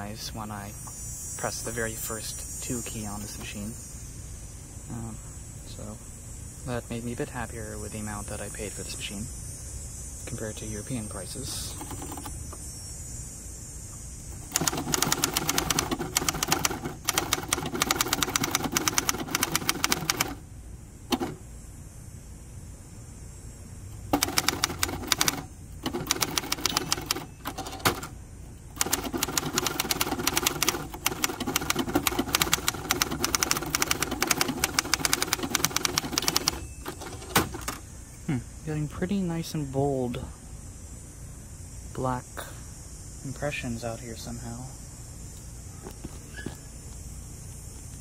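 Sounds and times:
manual typewriter keystrokes: 0:11.7 - 0:12.4, 0:14.4 - 0:20.4, 0:24.1 - 0:28.1, 0:28.7 - 0:37.8.

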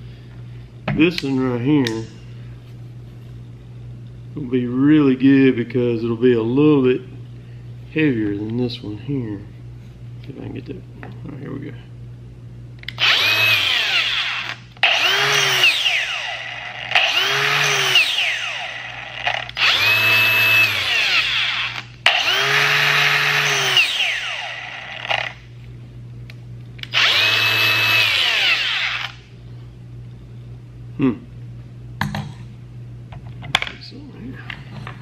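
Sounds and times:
angle grinder whining: 0:12.9 - 0:25.4, 0:26.8 - 0:29.2.

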